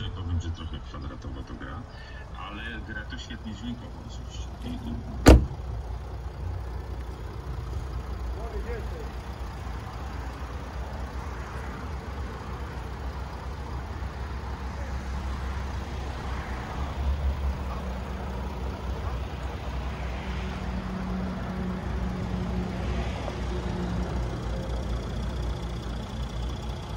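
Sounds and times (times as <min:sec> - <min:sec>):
car engine idling: 0:00.0 - 0:26.9.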